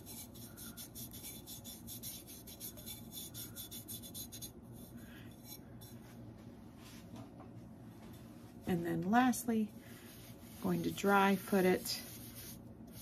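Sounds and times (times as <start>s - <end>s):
fingertips rubbing rough glaze: 0.0s - 6.1s.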